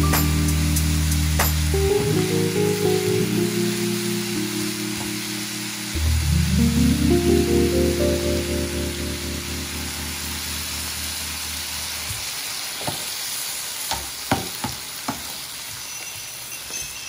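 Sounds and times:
background music: 0:00.0 - 0:12.1
food sizzling in a pan: 0:09.1 - 0:17.0.

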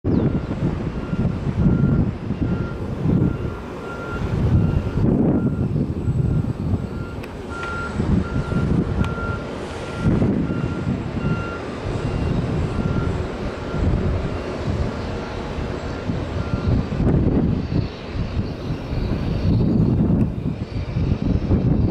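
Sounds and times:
vehicle engine rumble: 0:00.0 - 0:21.9
reversing alarm beeping: 0:00.1 - 0:16.9.

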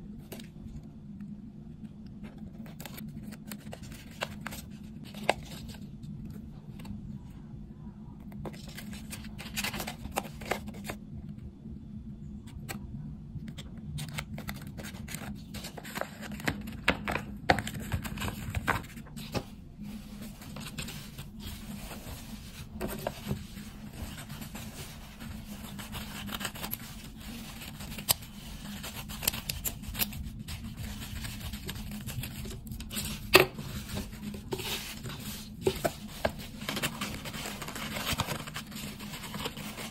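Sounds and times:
steady low hum: 0:00.0 - 0:39.9
paper rustling and tearing: 0:17.6 - 0:39.9.

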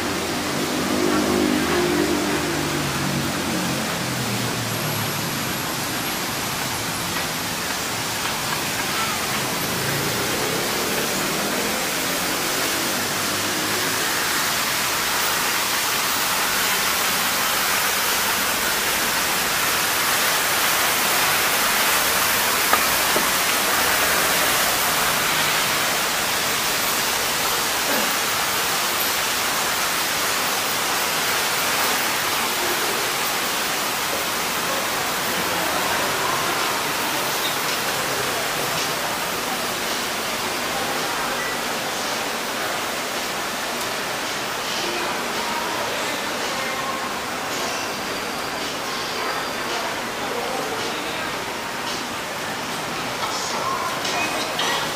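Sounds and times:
steady rushing hiss: 0:00.0 - 0:54.9.

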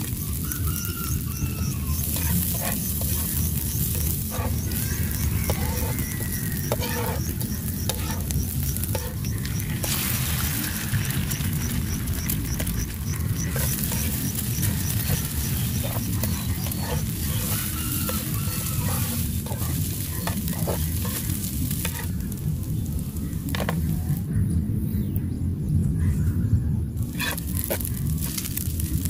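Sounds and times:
egg sizzling in oil: 0:00.0 - 0:24.0
spatula scraping and tapping pan: 0:00.8 - 0:22.4, 0:27.1 - 0:28.5.

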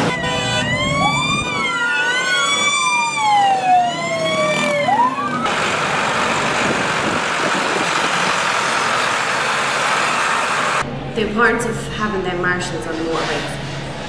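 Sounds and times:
police sirens wailing: 0:00.0 - 0:10.8
tractors passing: 0:00.0 - 0:11.0.

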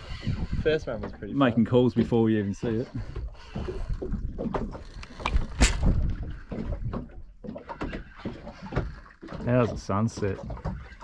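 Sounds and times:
wind rumble on microphone: 0:00.0 - 0:07.3.

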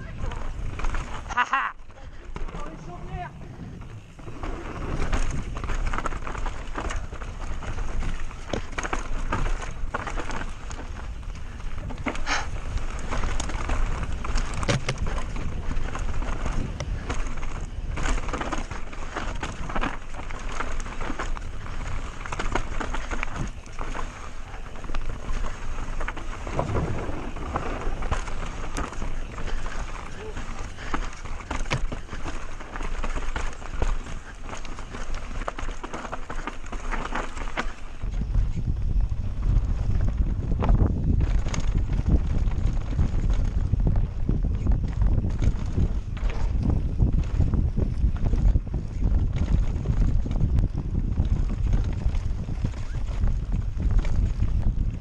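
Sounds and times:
bike rattling over bumps: 0:00.0 - 0:55.0
tyres rolling on dirt: 0:00.0 - 0:55.0
wind rumbling on microphone: 0:00.0 - 0:55.0
low rumble: 0:25.8 - 0:30.6.

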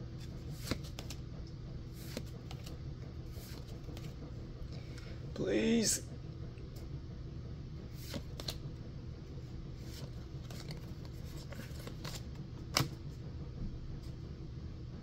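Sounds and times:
cards flicking and sliding: 0:00.2 - 0:01.2, 0:01.9 - 0:04.2, 0:07.9 - 0:08.6, 0:09.8 - 0:13.0.

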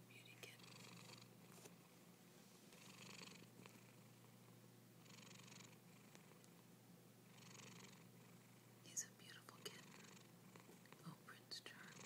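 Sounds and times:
steady low hum: 0:00.0 - 0:12.0
cat snoring: 0:00.6 - 0:01.3, 0:02.8 - 0:04.2, 0:05.0 - 0:06.4, 0:07.3 - 0:08.6, 0:09.6 - 0:10.7, 0:11.7 - 0:12.0.

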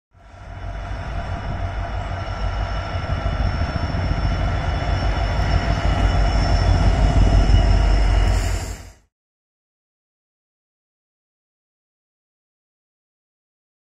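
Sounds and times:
locomotive engine rumble: 0:00.2 - 0:09.0
steady high whine: 0:00.2 - 0:09.1.

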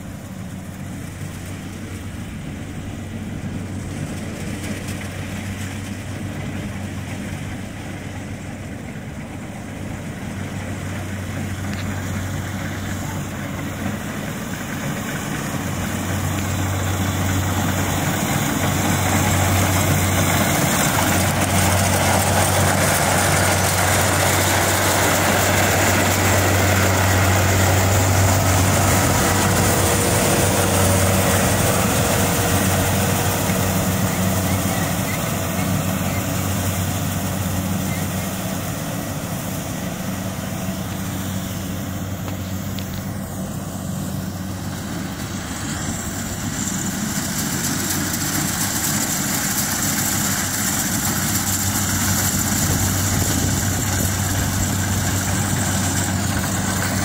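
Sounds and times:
diesel engine humming: 0:00.0 - 0:57.0
harvester cutting machinery noise: 0:00.0 - 0:57.0.

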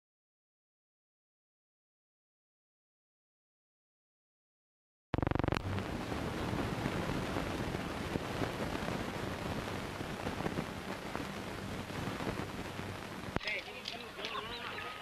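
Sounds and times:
rapid fluttering buzz: 0:05.2 - 0:13.4
film soundtrack hiss and crackle: 0:05.2 - 0:15.0.

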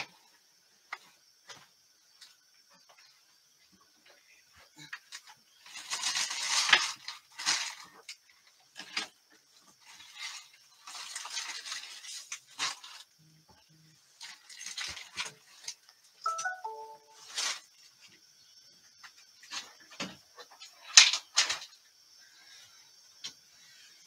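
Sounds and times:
rustling in plastic bin: 0:05.6 - 0:13.1.

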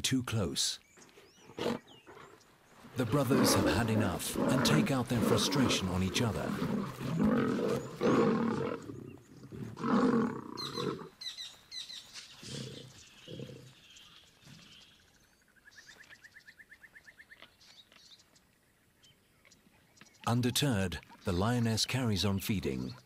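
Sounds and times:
lions snarling growls: 0:01.3 - 0:11.1, 0:12.4 - 0:13.8.

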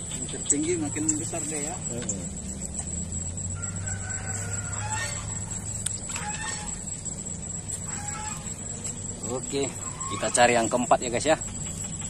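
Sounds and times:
low steady hum: 0:00.0 - 0:12.0
rooster crowing faintly: 0:03.5 - 0:06.8.

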